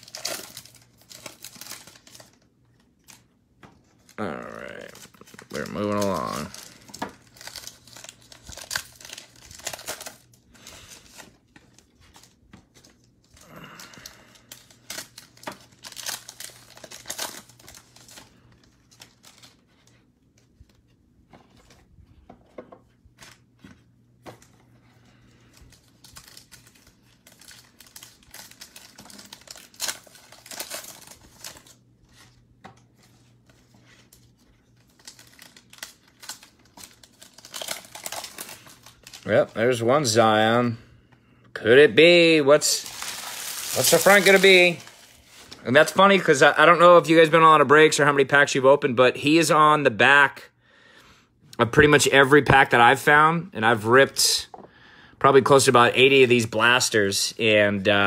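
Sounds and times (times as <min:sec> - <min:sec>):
foil packs crinkling and tearing: 0:00.0 - 0:03.3, 0:03.9 - 0:20.0, 0:24.4 - 0:32.5, 0:33.1 - 0:40.7, 0:42.0 - 0:48.0.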